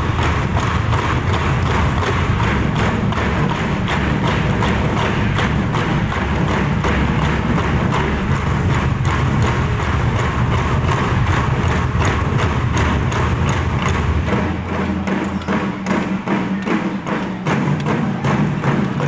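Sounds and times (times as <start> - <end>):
drum ensemble beating: 0.0 - 19.0.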